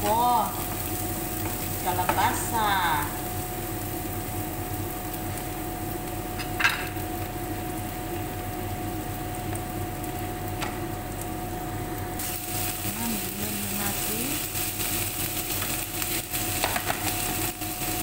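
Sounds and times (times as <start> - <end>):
onions sizzling in frying pan: 0.0 - 18.0.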